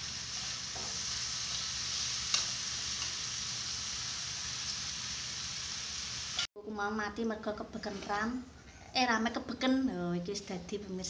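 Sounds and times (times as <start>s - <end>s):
chicken sizzling in a pan: 0.0s - 6.5s.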